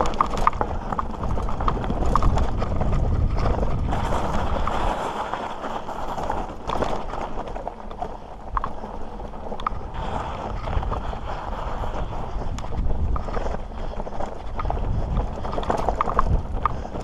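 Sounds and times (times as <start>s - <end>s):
bike knocking on stones: 0.0s - 8.8s, 12.6s - 17.0s
bike rattling: 0.0s - 17.0s
bike tyres crunching on rock: 0.0s - 17.0s
wind on microphone: 0.0s - 17.0s.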